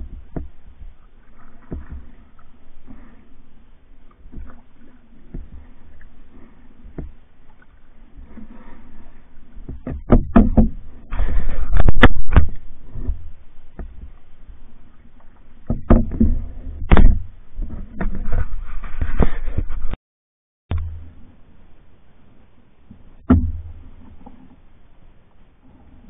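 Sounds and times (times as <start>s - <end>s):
paddle strokes in water: 0.0s - 19.9s, 22.8s - 26.0s
sharp loud knocks: 9.9s - 10.8s, 23.2s - 23.7s.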